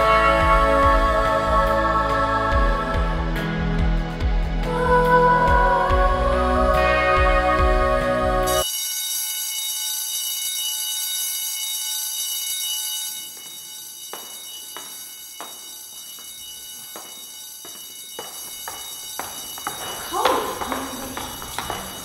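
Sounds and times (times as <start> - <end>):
high ringing alarm tone: 7.2 - 22.0
footsteps: 13.0 - 22.0.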